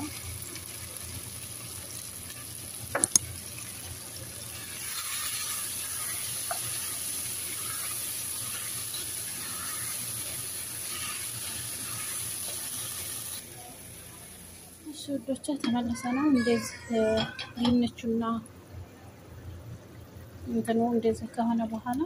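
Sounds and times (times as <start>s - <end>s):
potatoes sizzling in a pot: 0.0s - 15.5s.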